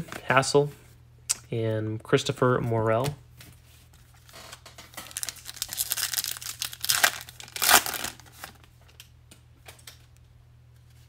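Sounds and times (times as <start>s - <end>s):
foil wrapper tearing and crinkling: 4.2s - 8.6s.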